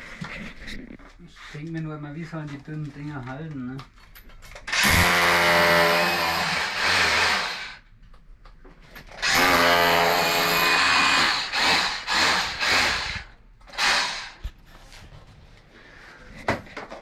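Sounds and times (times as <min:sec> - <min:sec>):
cordless drill motor whining: 0:04.7 - 0:07.7, 0:09.2 - 0:14.5.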